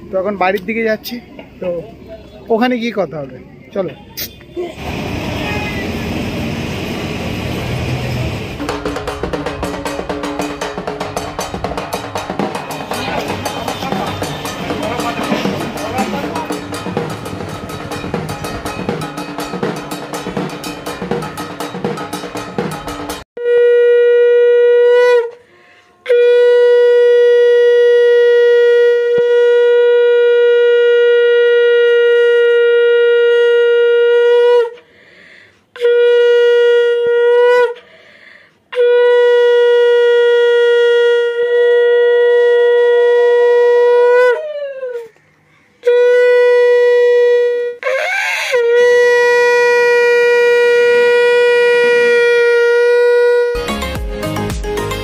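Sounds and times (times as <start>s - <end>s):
drumming: 8.4s - 23.3s, 53.6s - 55.0s
conch shell blasts: 8.5s - 25.4s, 26.0s - 34.8s, 45.8s - 53.6s.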